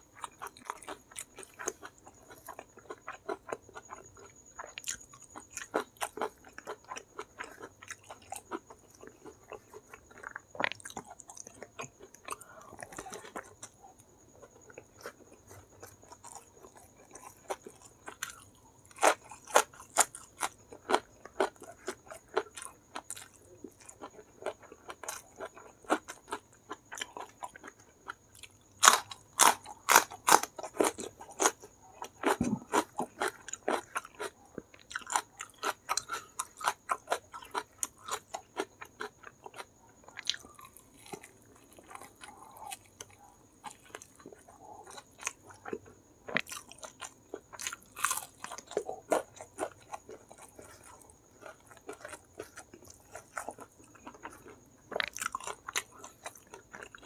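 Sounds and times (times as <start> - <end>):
crunchy fried chicken chewing: 0.1 - 57.0.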